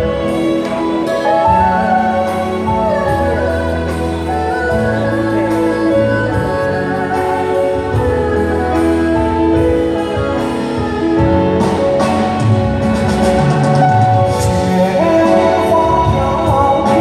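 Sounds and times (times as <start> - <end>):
orchestra strings slow melody: 0.0 - 17.0.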